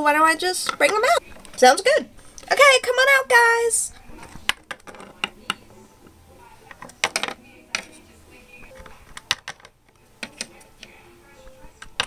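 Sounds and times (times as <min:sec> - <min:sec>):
plastic figurines tapping on wood: 0:04.4 - 0:05.6, 0:09.1 - 0:10.5.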